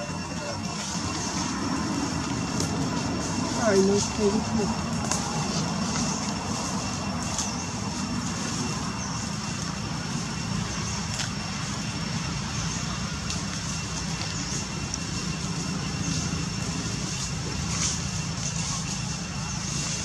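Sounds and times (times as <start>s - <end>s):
faint high whine: 0.0s - 20.0s
low rumble: 0.0s - 20.0s.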